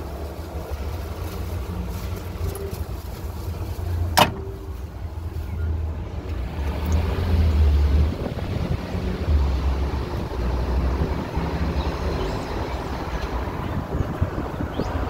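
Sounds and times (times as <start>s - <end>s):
street traffic: 0.0s - 15.0s
wind on microphone: 7.6s - 15.0s.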